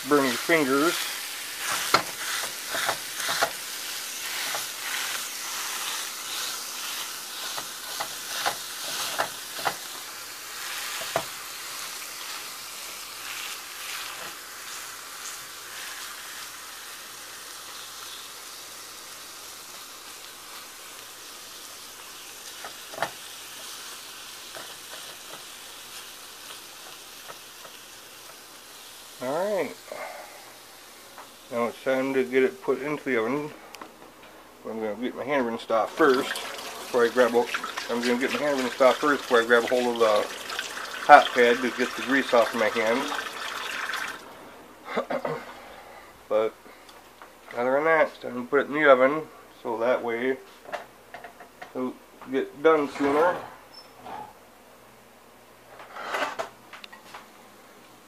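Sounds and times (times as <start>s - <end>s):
meat sizzling in a frying pan: 0.0s - 32.9s, 35.7s - 44.3s.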